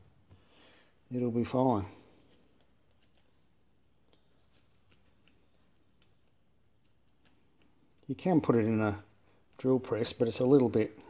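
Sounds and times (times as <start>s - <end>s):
small metallic clicks and scrapes: 2.2s - 8.8s.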